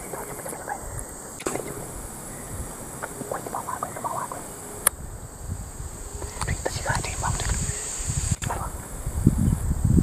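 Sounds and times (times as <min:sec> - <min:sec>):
insects droning: 0:00.0 - 0:10.0
sharp click: 0:01.4 - 0:01.9.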